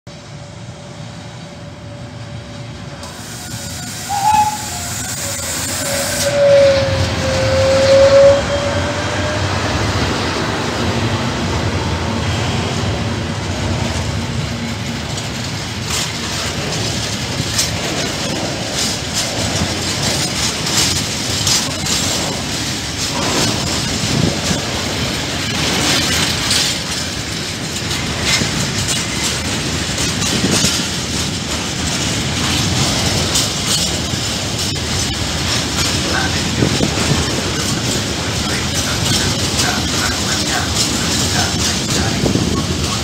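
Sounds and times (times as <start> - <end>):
freight train passing: 0.1 - 43.0
wagons rumbling: 2.2 - 43.0
long tone sagging in pitch: 5.8 - 9.8
wheels clicking over rail joints: 13.6 - 43.0.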